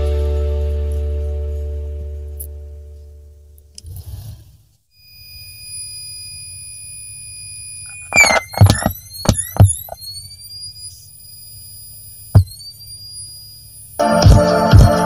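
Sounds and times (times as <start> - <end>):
high whine: 5.0 - 15.0
amplifier low hum: 5.2 - 14.0
audio jack handled: 7.9 - 10.0.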